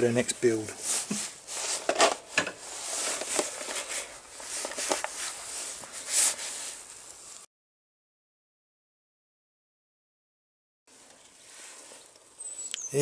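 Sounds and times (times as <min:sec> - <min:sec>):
rustling: 0:00.2 - 0:07.5, 0:10.9 - 0:12.7.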